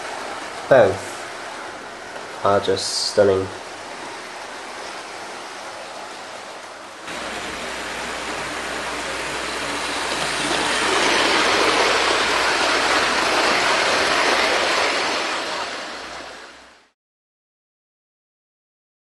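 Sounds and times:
model train rumbling on track: 6.9 - 16.9.

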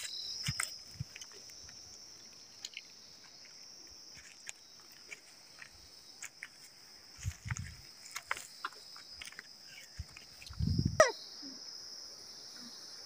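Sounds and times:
high-pitched insect trill: 0.0 - 13.0
footsteps on rocky path: 3.2 - 10.4.

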